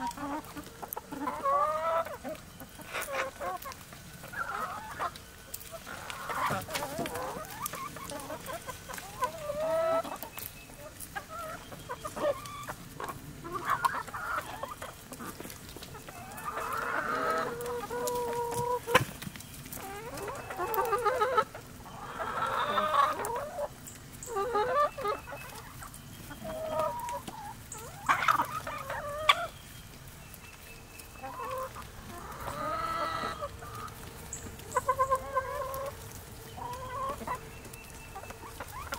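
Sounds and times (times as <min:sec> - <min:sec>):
chickens clucking: 0:00.0 - 0:38.9.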